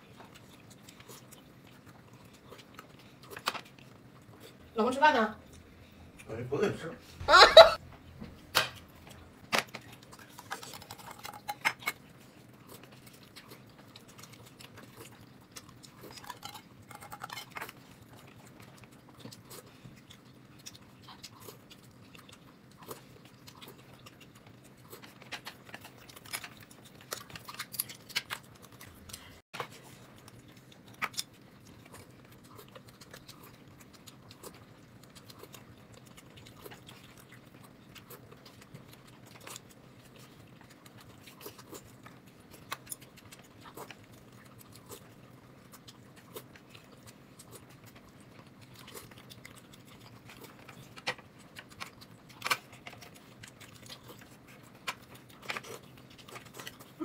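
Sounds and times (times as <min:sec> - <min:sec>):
person chewing: 0:00.0 - 0:04.8, 0:08.6 - 0:57.0
faint room hum: 0:00.0 - 0:57.0.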